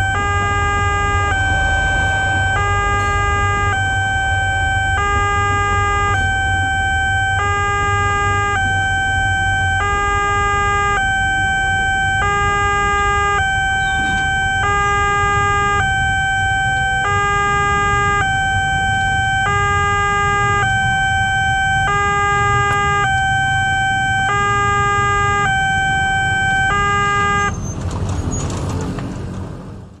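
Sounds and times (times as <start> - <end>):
two-tone level crossing alarm: 0.0 - 27.5.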